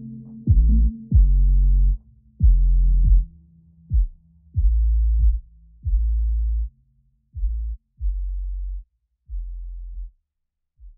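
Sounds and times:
deep electronic bass hits: 0.5 - 3.3.

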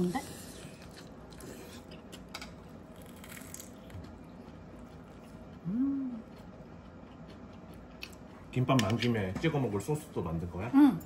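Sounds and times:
soft chewing: 0.1 - 8.6
person humming: 5.6 - 6.3.

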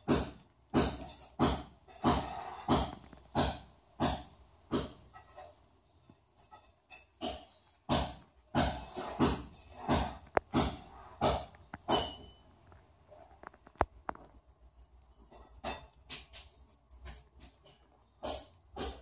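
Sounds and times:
nursing cat noisy pulses: 0.0 - 5.7, 7.2 - 12.2
sharp clicks: 2.8 - 16.6.

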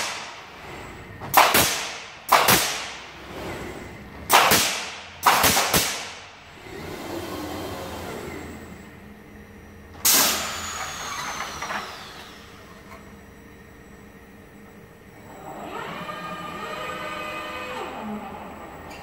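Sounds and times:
pneumatic nailer shots: 0.0 - 0.5, 1.2 - 3.6, 4.3 - 6.3, 10.0 - 12.4
machine hum: 0.0 - 19.0
thin falling whine: 8.0 - 19.0.

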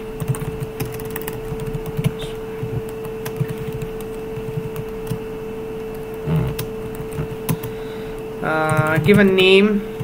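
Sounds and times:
steady hum: 0.0 - 10.0
keyboard keys clicking: 0.2 - 5.2, 5.8 - 7.7, 8.6 - 9.4.

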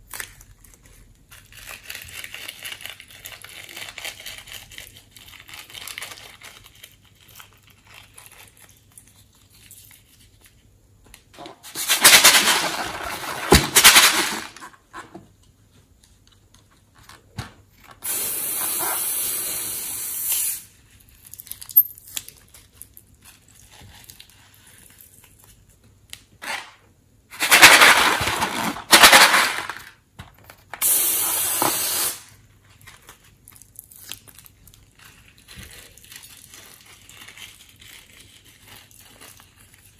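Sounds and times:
steady hiss: 18.0 - 20.8, 30.8 - 32.3
balloon crackling and crinkling: 32.4 - 39.9.

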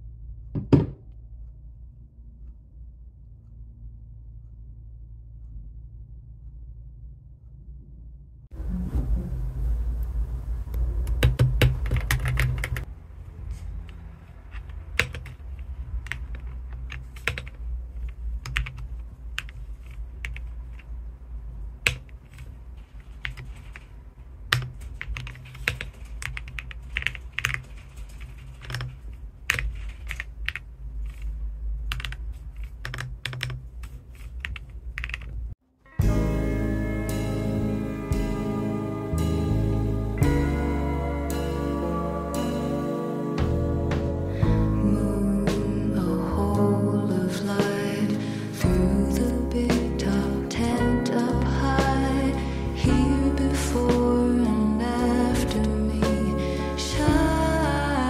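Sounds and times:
steady low hum: 0.0 - 32.8
mechanical keyboard typing: 11.1 - 12.9, 14.5 - 20.9, 21.8 - 35.4.

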